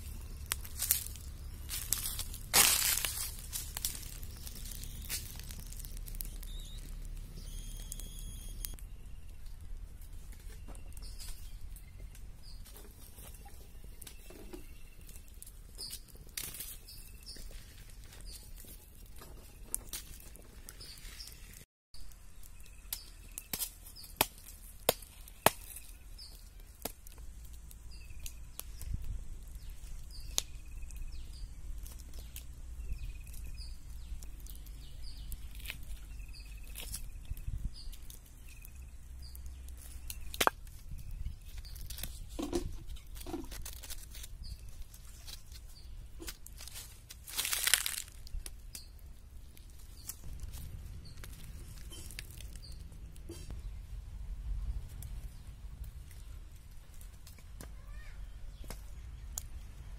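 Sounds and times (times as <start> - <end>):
high chirps: 4.1 - 9.1.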